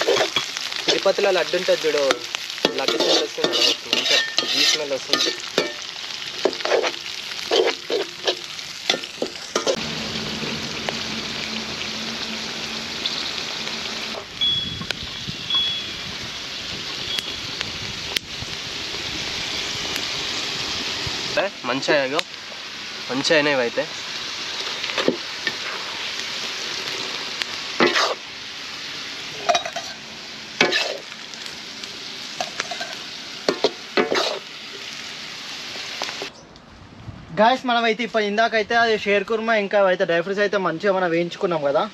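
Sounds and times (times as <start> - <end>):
spatula scraping pan: 0.0 - 1.0, 2.1 - 9.8, 27.8 - 28.2, 30.6 - 31.1, 32.4 - 34.4
frying sizzle: 0.0 - 36.4, 39.0 - 41.9.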